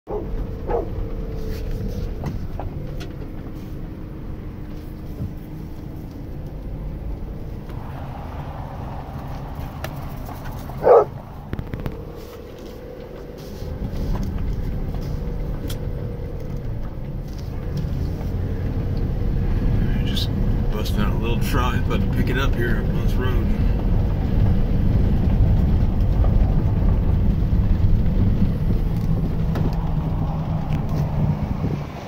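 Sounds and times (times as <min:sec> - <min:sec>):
dog barking: 0:00.1 - 0:01.0, 0:10.8 - 0:11.2
car rumbling on gravel: 0:00.1 - 0:32.0.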